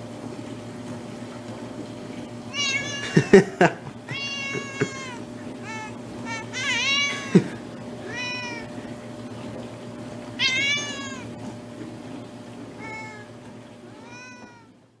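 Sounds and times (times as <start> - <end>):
low steady hum: 0.0 - 15.0
cat meowing: 2.5 - 3.4, 4.1 - 8.8, 10.4 - 11.4, 12.8 - 14.7.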